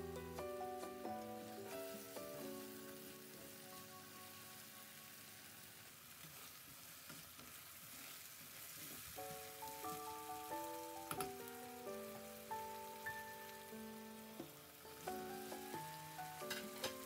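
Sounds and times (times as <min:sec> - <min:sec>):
background music: 0:00.0 - 0:05.5, 0:09.2 - 0:17.0
paste sizzling in oil: 0:00.6 - 0:17.0
spatula stirring in pan: 0:06.1 - 0:10.0.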